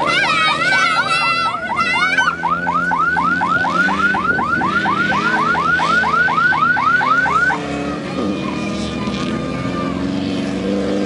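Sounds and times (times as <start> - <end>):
engine running: 0.0 - 11.0
car alarm rising chirps: 1.3 - 7.6.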